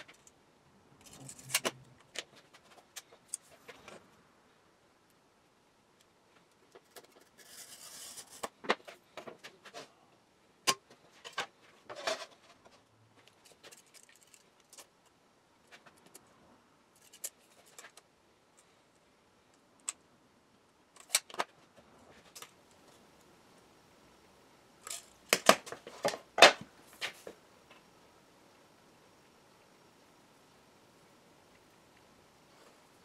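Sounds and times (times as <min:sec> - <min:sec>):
scratchy scrape: 0:06.8 - 0:08.5.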